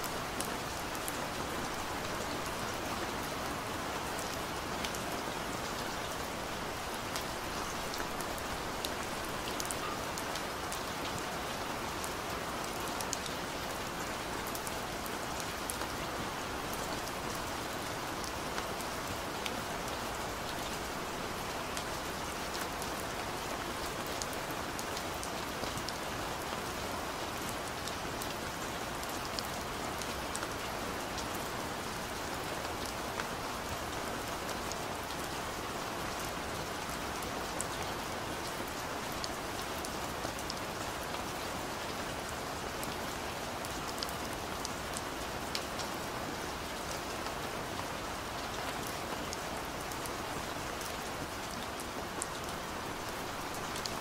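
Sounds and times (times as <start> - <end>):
steady rain falling: 0.0 - 54.0.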